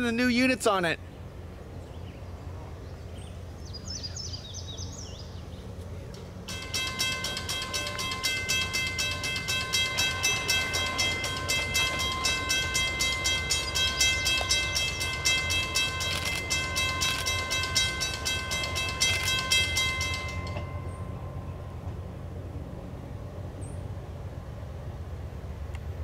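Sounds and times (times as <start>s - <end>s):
mechanical crossing bell ringing: 6.4s - 22.0s.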